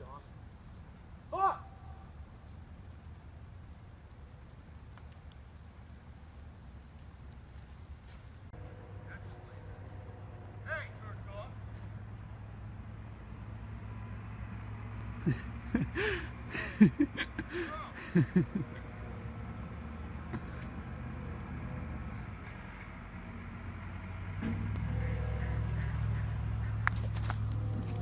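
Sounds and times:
low rumble: 8.4 - 15.8, 17.4 - 28.0.

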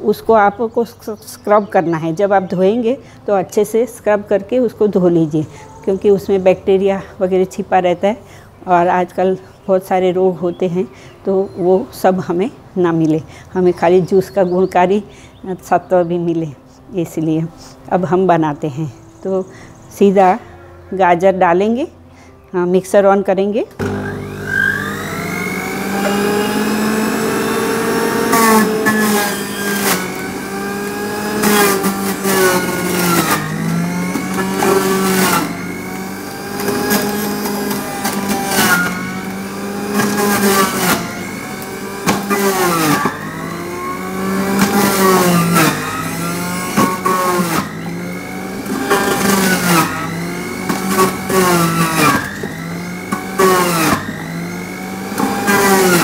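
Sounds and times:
carrots grinding: 23.8 - 56.0
electric juicer motor hum: 23.8 - 56.0.

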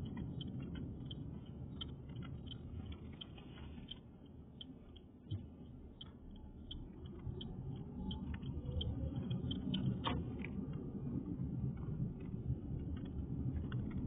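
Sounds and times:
regular ticking: 0.0 - 10.8
engine and tyres rumble: 0.0 - 14.0.

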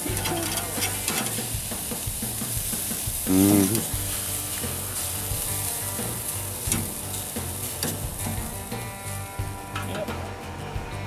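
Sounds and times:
metal spatula scraping grate: 0.0 - 2.0, 3.3 - 10.1
patties sizzling on grill: 0.0 - 11.0.

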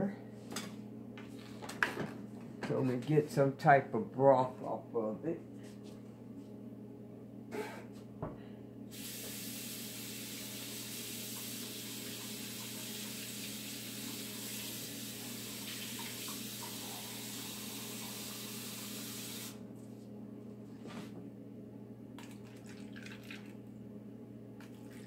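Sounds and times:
faucet running: 8.9 - 19.6, 22.2 - 23.5.

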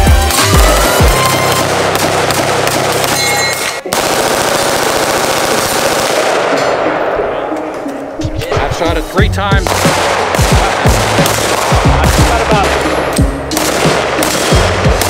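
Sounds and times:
rapid gunfire: 0.1 - 7.1, 9.6 - 12.9, 13.5 - 15.0.

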